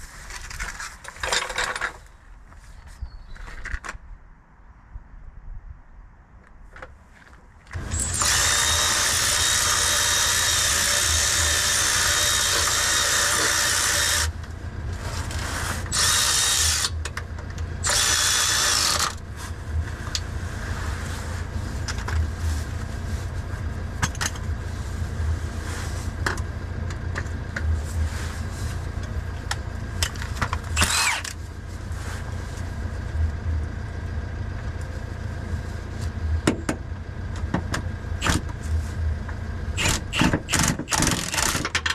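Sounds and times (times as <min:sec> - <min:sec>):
low steady hum: 0:00.0 - 0:41.9
handheld power tool running: 0:07.8 - 0:14.4, 0:15.9 - 0:17.0, 0:17.8 - 0:19.2, 0:30.8 - 0:31.4, 0:39.8 - 0:41.9.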